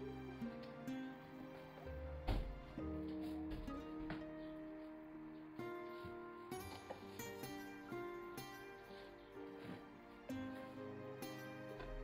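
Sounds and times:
soft instrumental music: 0.0 - 12.0.

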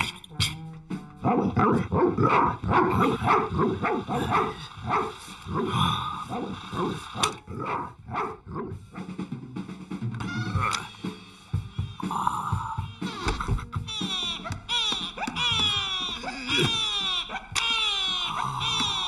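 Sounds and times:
cartoon background music: 0.0 - 19.0.

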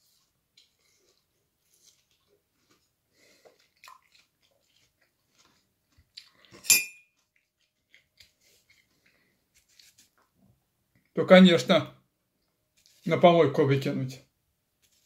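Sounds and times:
sharp ringing clink: 6.6 - 7.1.

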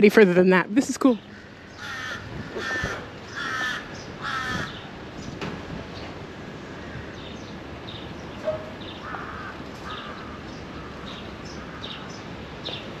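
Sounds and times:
steady background noise: 0.0 - 13.0
birds calling: 0.8 - 13.0.

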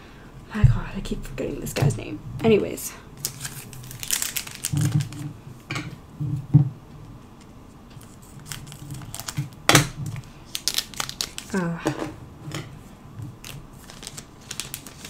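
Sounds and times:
foil packs crinkling: 3.2 - 5.3, 8.0 - 11.6, 13.4 - 15.0.

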